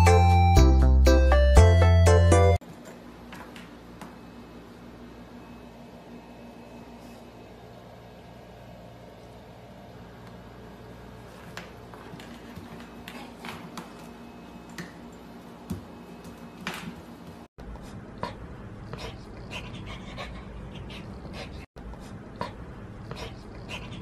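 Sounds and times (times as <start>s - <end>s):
puppy panting: 18.2s - 24.0s.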